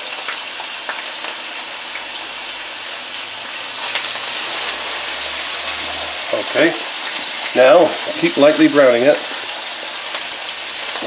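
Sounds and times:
meat sizzling in oil: 0.0 - 11.0.

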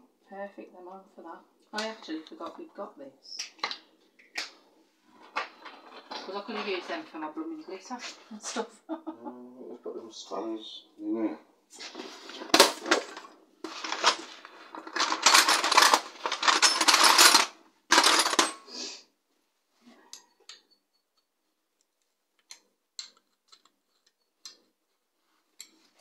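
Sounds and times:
metal screws rattling in plastic box: 12.9 - 18.6.

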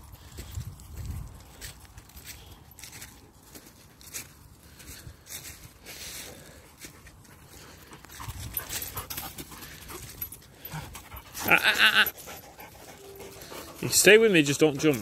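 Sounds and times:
dog panting: 6.9 - 11.5, 12.1 - 15.0.

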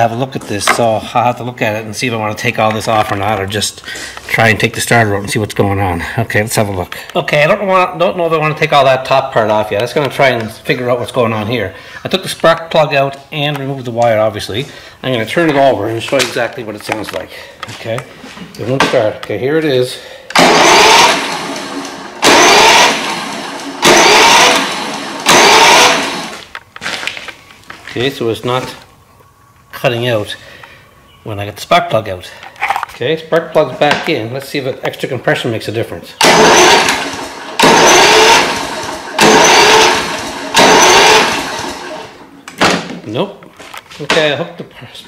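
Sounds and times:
electric starter whirring: 20.3 - 27.1, 36.2 - 42.6.

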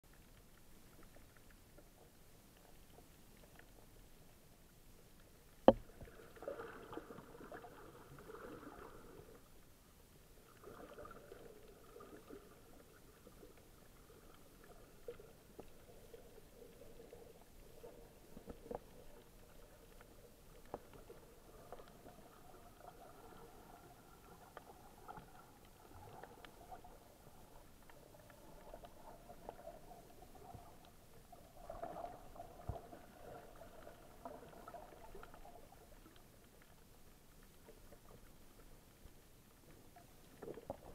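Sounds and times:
faint underwater clicks: 0.1 - 40.9
underwater water murmur: 0.2 - 40.9.

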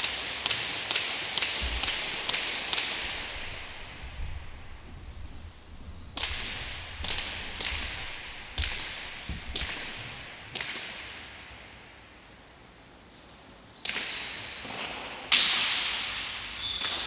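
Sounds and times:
ball smacking off court walls: 1.4 - 11.1.

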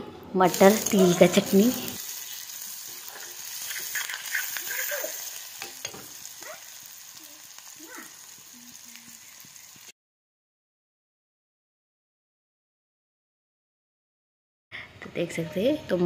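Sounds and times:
onions sizzling in hot oil: 0.4 - 9.9.

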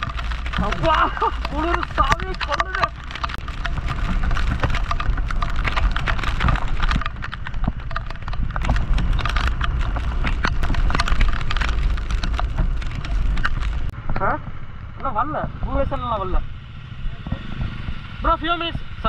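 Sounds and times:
raindrops tapping close: 0.0 - 14.0
heavy rain rumble: 0.0 - 14.3.

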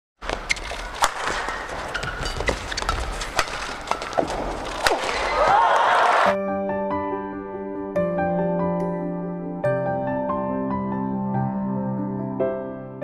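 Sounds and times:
shoe squeaks on court: 0.2 - 5.4
racket hitting shuttlecock: 0.2 - 5.8
crowd noise: 4.5 - 6.4
soft piano music: 6.3 - 13.0.

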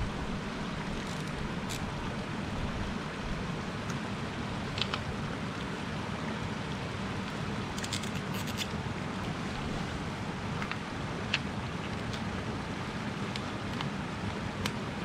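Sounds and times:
steady low rush: 0.0 - 7.8.

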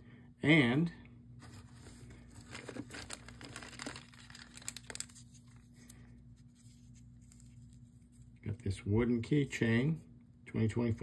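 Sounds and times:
plastic bags crinkling: 1.5 - 5.9.

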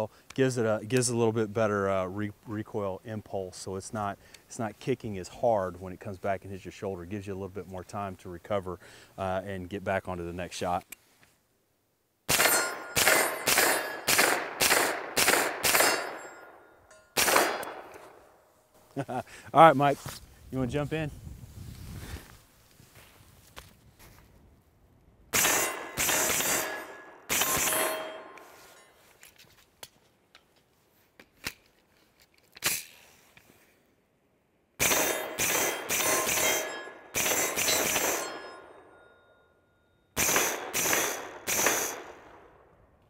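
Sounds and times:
carbine gunshots: 12.3 - 16.4, 17.2 - 18.2, 25.4 - 28.4, 34.8 - 38.7, 40.2 - 42.4.

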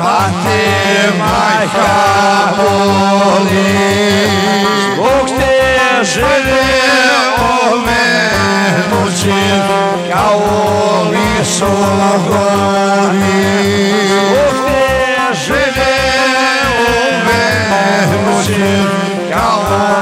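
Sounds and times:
keyboard melody: 0.0 - 20.0
programmed bass beat: 0.1 - 20.0
long-necked lute melody: 0.2 - 20.0.

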